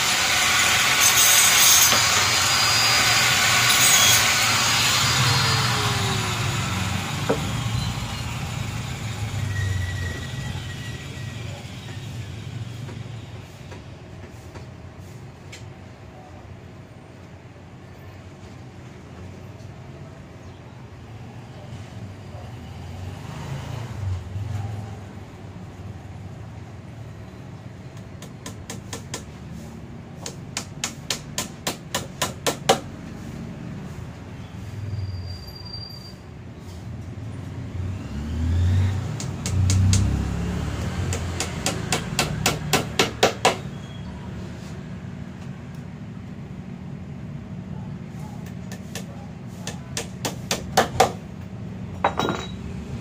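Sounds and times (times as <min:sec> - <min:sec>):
rapid sharp knocks: 0:41.1 - 0:43.6.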